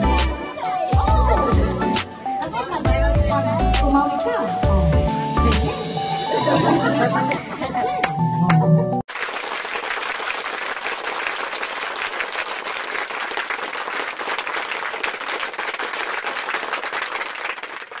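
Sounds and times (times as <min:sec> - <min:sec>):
crowd applauding: 0:09.1 - 0:18.0.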